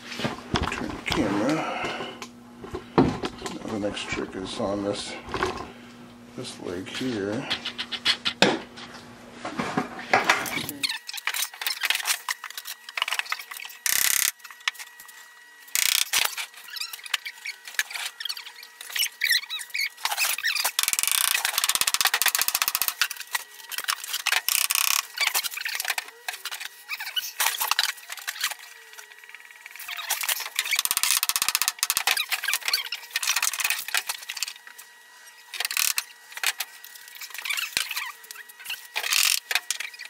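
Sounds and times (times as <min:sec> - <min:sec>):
faint steady hum: 0:00.0 - 0:40.0
clicks scrapes and rustles: 0:06.9 - 0:40.0.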